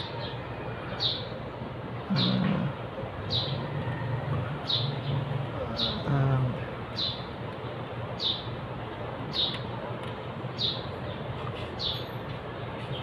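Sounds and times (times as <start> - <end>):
low background noise: 0.0 - 13.0
bird chirping: 6.9 - 7.3, 8.2 - 8.5, 9.3 - 9.7, 10.6 - 12.2.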